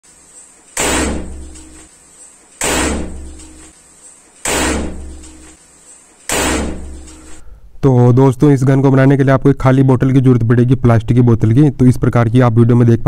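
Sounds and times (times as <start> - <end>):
bottle gun bangs: 0.8 - 1.8, 2.6 - 3.7, 4.4 - 5.6, 6.3 - 7.4.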